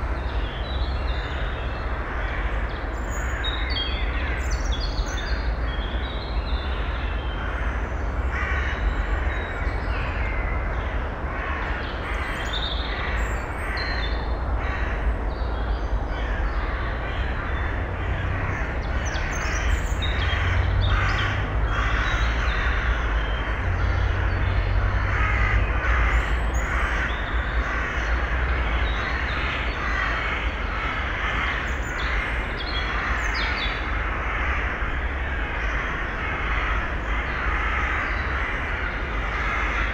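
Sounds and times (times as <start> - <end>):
harsh raspy bird calls: 16.1 - 39.9.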